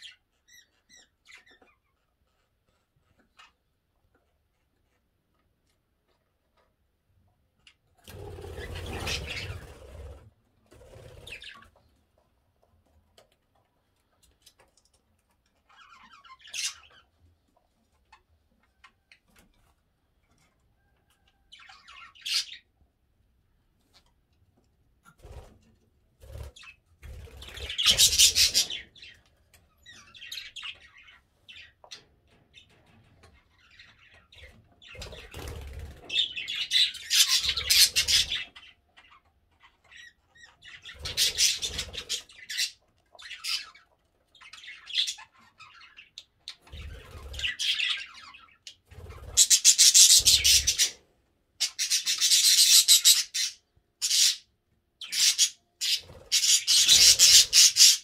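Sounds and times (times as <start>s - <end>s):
budgerigars chattering and warbling: 8.2s - 10.2s, 15.7s - 17.1s, 27.4s - 29.2s, 33.6s - 51.0s, 51.6s - 58.0s.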